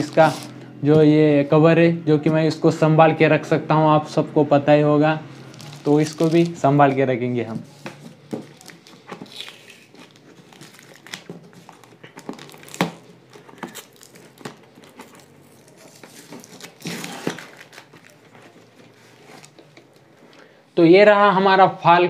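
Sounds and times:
tape crinkling and tearing: 0:00.0 - 0:00.6, 0:05.4 - 0:06.7, 0:08.4 - 0:20.1
packing tape peeling off cardboard: 0:08.6 - 0:18.6.

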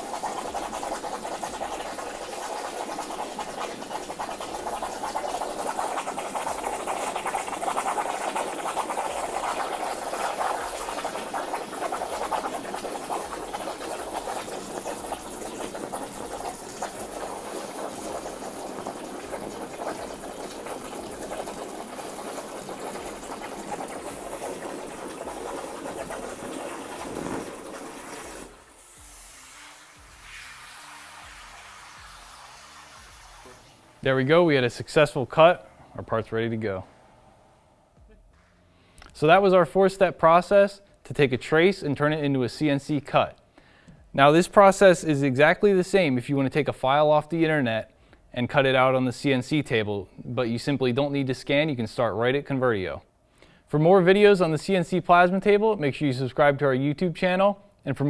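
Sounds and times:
plasma torch hissing: 0:26.6 - 0:34.0.

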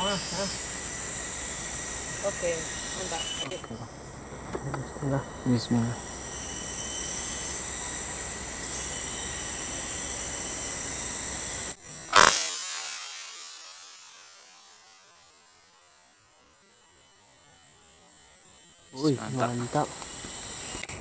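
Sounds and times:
insect chorus: 0:00.0 - 0:21.0
rifle shot: 0:12.1 - 0:14.2.

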